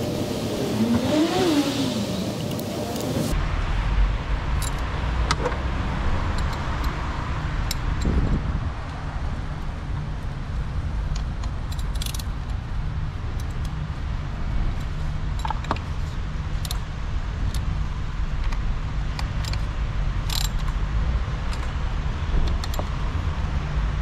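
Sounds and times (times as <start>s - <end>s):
steady low rumble: 0.0s - 1.0s, 1.9s - 24.0s
hand tool metallic clicks: 4.6s - 5.4s, 6.3s - 7.0s, 11.1s - 12.6s, 19.2s - 20.8s.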